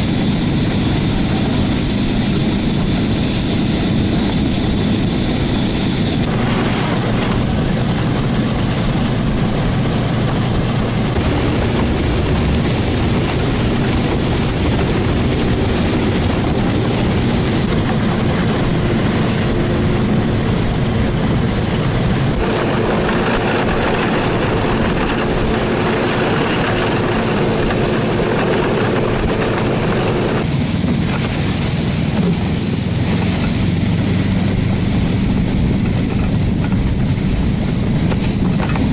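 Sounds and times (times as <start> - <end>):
small engine running: 22.4 - 30.5.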